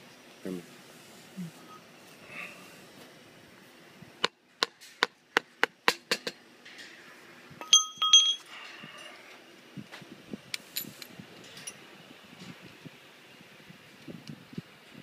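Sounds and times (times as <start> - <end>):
hammer tapping metal: 7.6 - 8.5
ringing metallic clinks: 7.6 - 9.1.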